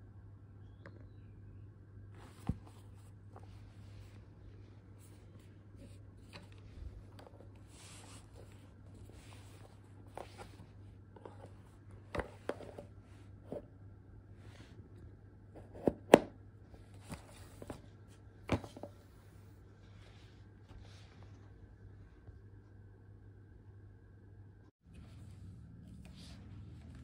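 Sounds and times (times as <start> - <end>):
faint steady low hum: 0.0 - 27.0
soft rustling of handling: 2.1 - 13.7, 16.7 - 22.6, 24.9 - 27.0.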